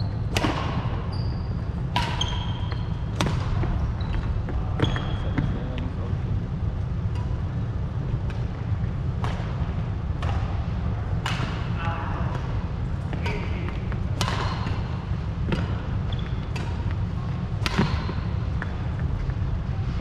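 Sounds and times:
shoe squeaks on wooden court: 1.0s - 3.0s, 3.8s - 5.6s, 16.0s - 16.6s
badminton racket hitting shuttlecock: 13.2s - 14.9s.

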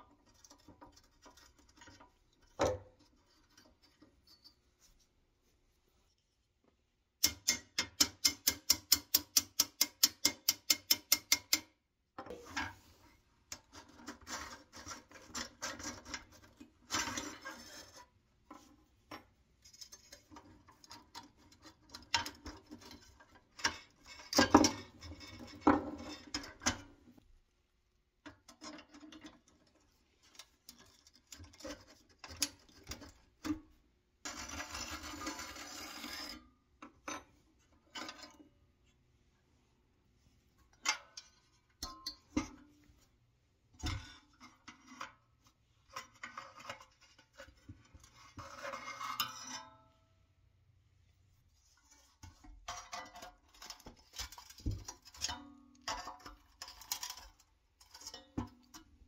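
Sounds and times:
steel parts scraping and knocking: 2.9s - 4.7s, 13.5s - 27.0s, 34.3s - 38.4s, 45.9s - 49.8s, 51.8s - 58.9s
small hammer tapping on steel: 7.2s - 11.8s.

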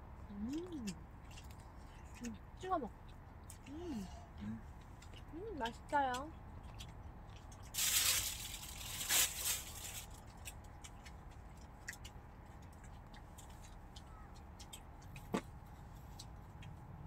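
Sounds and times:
eating and drinking sounds: 0.0s - 17.0s
noisy rustle: 7.6s - 10.6s
faint clicks and ticks: 10.2s - 17.0s.

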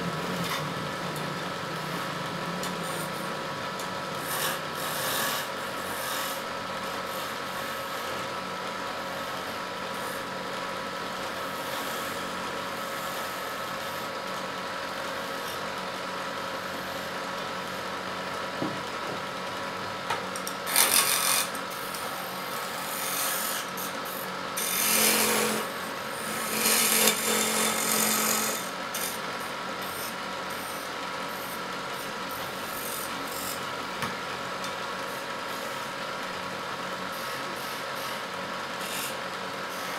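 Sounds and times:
wood lathe motor hum: 0.0s - 19.6s, 20.4s - 39.9s
chisel scraping spinning wood: 1.9s - 8.3s, 11.3s - 14.0s, 20.5s - 33.7s, 37.1s - 39.9s.

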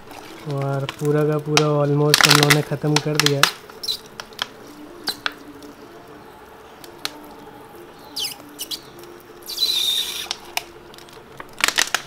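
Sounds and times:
plastic bottle clicks and squeaks: 2.1s - 2.6s, 3.2s - 5.4s, 8.2s - 12.0s
liquid hissing spurt: 8.2s - 10.6s.

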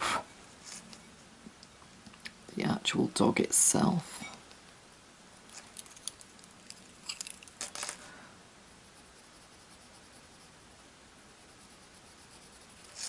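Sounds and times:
pencil scratching on paper: 8.9s - 10.6s, 11.4s - 13.0s.

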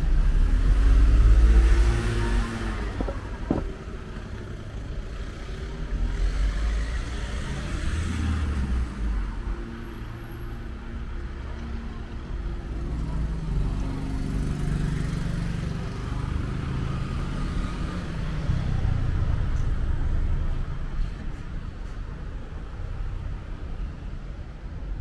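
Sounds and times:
cars passing: 0.0s - 8.9s
car engine humming close by: 0.7s - 5.0s.

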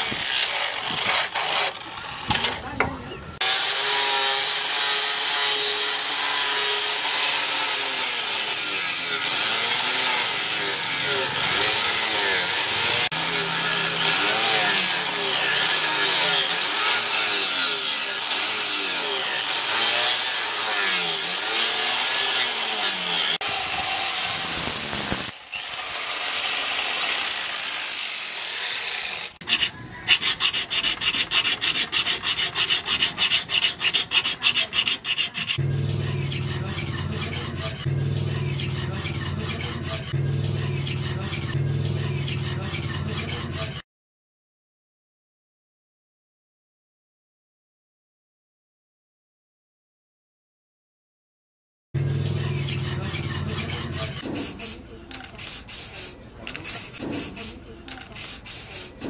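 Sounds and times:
rhythmic scraping of blade: 0.0s - 2.7s, 3.4s - 25.4s, 26.0s - 43.8s, 52.0s - 59.0s
angle grinder grinding steel: 0.0s - 43.8s, 52.0s - 55.3s
blade rubbing on sharpening stone: 29.4s - 43.8s, 52.0s - 59.0s.

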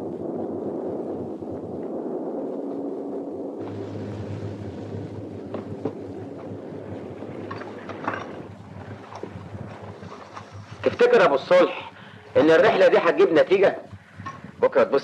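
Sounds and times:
wind and sea rushing: 0.0s - 15.0s
low engine hum: 3.6s - 10.9s
light knocks and clatters: 7.3s - 10.9s.

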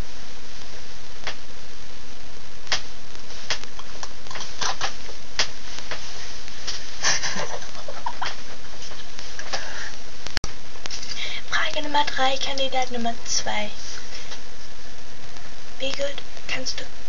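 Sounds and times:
steady hiss: 0.0s - 17.0s
girl laughing: 7.0s - 9.0s.

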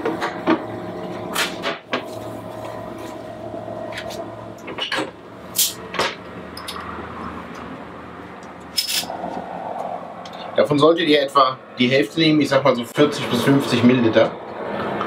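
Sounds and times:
low hum: 2.1s - 10.7s.

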